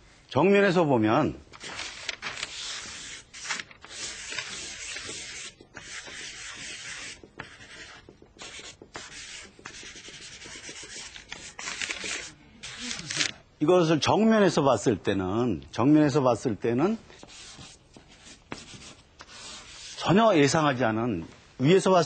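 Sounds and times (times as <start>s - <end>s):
drawing stick scraping paper: 1.6s - 13.3s, 17.2s - 20.2s.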